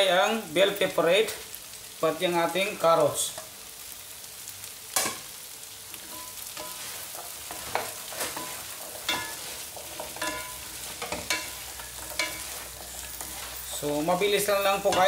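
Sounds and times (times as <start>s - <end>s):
vegetables sizzling in oil: 0.0s - 15.0s
wooden spatulas scraping a pan: 6.0s - 15.0s.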